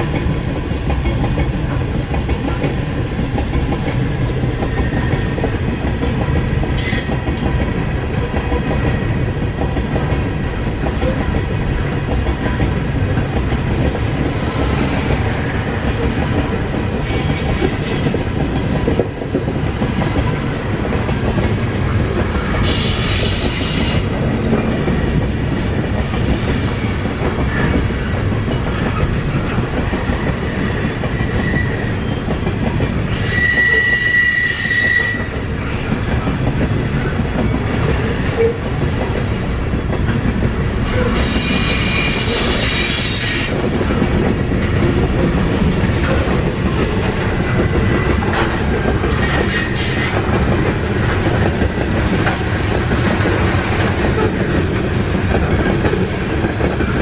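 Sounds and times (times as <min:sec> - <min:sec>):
freight train rumbling past: 0:00.0 - 0:57.0
high-pitched wheel squeal: 0:33.1 - 0:35.9, 0:41.0 - 0:43.5.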